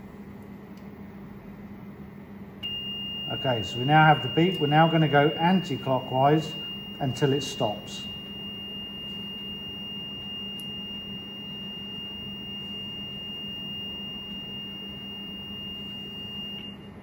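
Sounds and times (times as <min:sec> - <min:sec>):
high-pitched beeper tone: 0:02.6 - 0:16.2.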